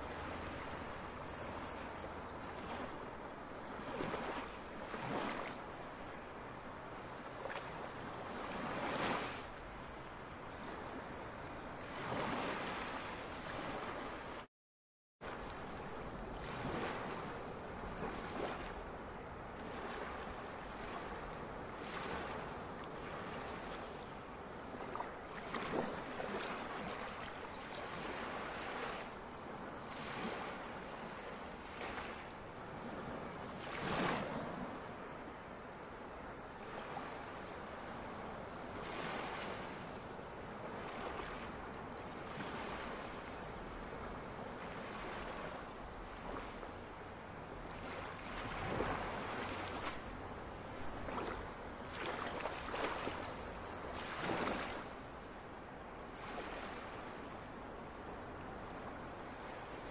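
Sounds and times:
waves breaking on shore: 0.0 - 14.5, 15.2 - 59.9.

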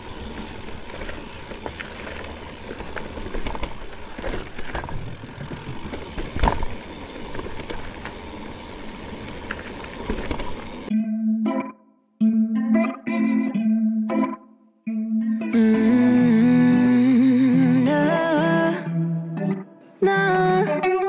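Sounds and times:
bike rattles and knocks: 0.0 - 10.9
bike rushing over rough ground: 0.0 - 10.9.

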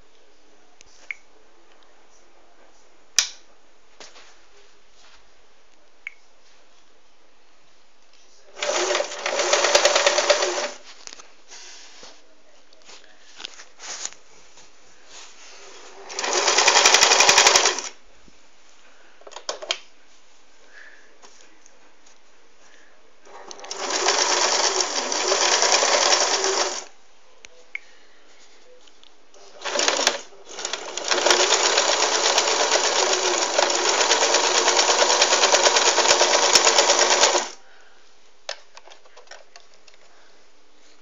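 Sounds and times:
sewing machine stitching: 8.5 - 10.8, 15.8 - 18.0, 23.3 - 26.9, 29.5 - 37.6.

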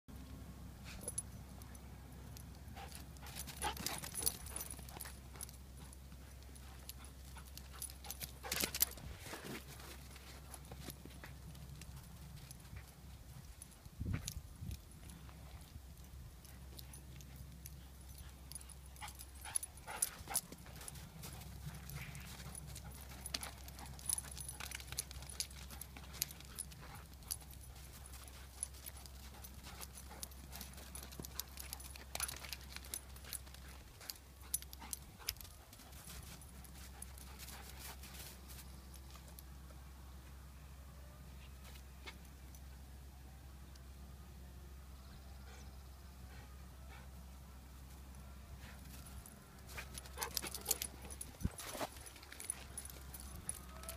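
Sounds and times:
dog paws crunching on snow: 2.8 - 14.4, 16.5 - 39.4, 48.6 - 53.9.

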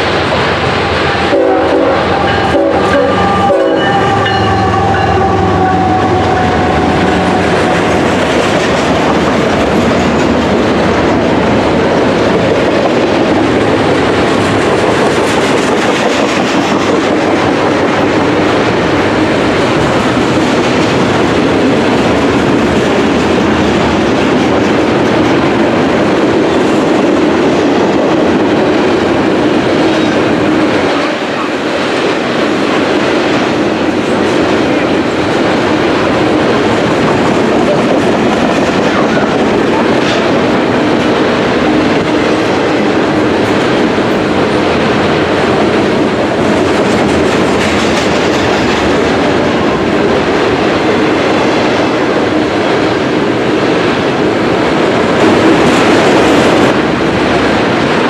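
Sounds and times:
train wheels rumbling on rails: 0.0 - 58.0
locomotive horn: 1.0 - 8.1.

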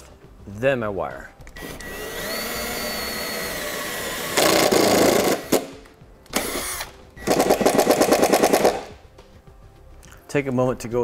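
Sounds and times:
impact driver whining: 1.5 - 8.9
impact driver rapid hammering: 2.1 - 5.7, 6.4 - 8.9.

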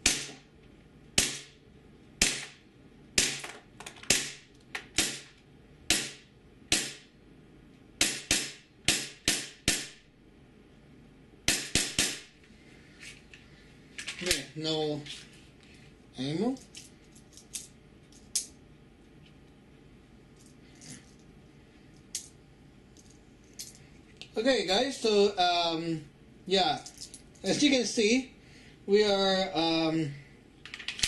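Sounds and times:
airsoft pistol shots: 0.0 - 0.4, 1.2 - 1.6, 2.2 - 2.6, 3.2 - 3.5, 4.1 - 7.1, 8.0 - 10.0, 11.5 - 12.3.

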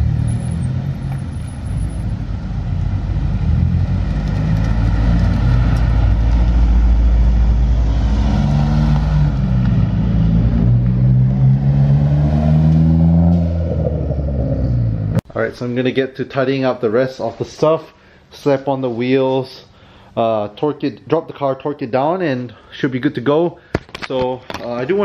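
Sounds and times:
car engines accelerating: 0.0 - 15.2.

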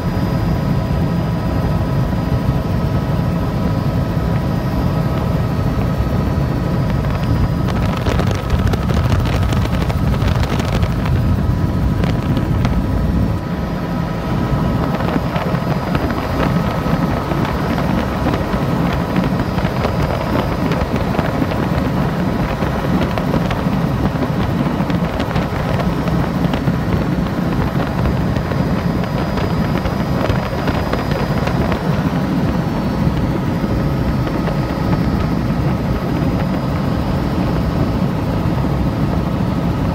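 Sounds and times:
helicopter rotor and engine drone: 0.0 - 39.9
wind rushing over microphone: 0.0 - 39.9.

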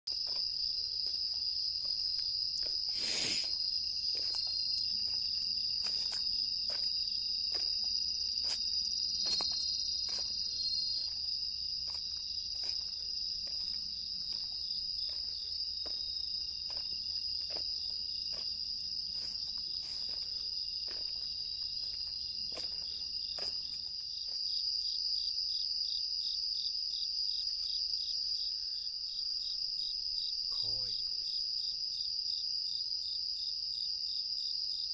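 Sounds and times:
footsteps on a path: 0.1 - 24.8
crickets trilling: 0.1 - 34.9.

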